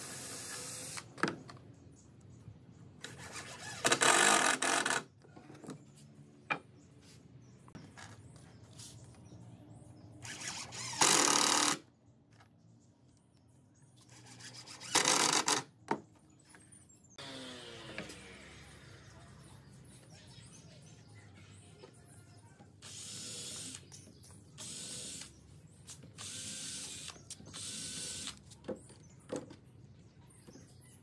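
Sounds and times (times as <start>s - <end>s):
cordless drill driving screws: 3.6s - 5.1s, 10.2s - 11.8s, 14.4s - 15.7s, 22.8s - 23.9s, 24.6s - 25.3s, 26.2s - 28.4s.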